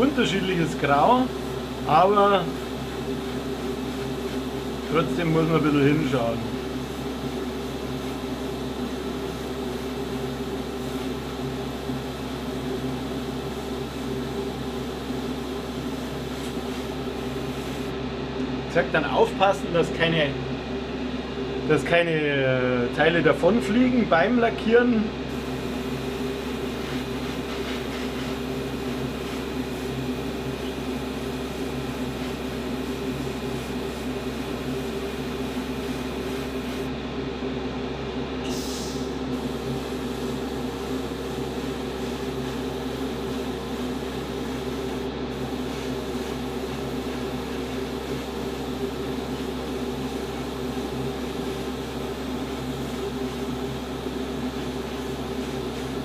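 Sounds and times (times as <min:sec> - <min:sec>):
airbrush air hiss: 0:00.0 - 0:17.9, 0:25.3 - 0:36.9, 0:38.4 - 0:56.0
electric hum: 0:00.0 - 0:18.0, 0:38.3 - 0:56.0.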